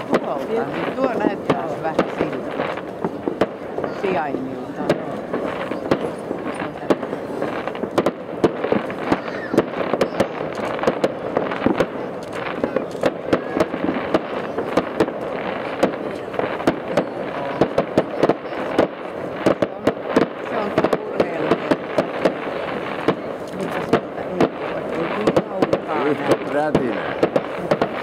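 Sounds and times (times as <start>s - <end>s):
fireworks bangs and pops: 0.0s - 28.0s.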